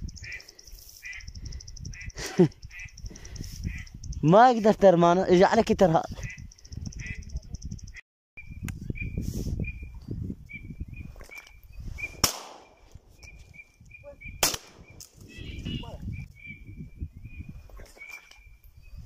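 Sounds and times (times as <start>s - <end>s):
bird chirping: 0.0s - 4.8s, 6.0s - 19.0s
shotgun shots: 12.2s - 12.8s, 14.4s - 15.0s.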